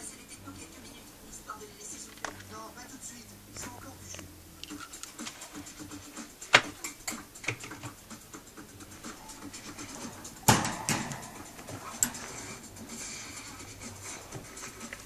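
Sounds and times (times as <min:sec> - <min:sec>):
cage clatter: 0:06.4 - 0:15.0
rats clambering on wire cage: 0:09.9 - 0:15.0.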